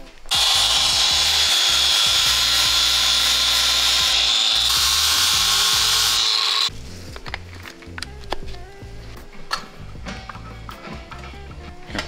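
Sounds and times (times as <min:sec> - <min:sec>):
background music: 0:00.0 - 0:12.0
grinder grinding steel: 0:00.3 - 0:06.8.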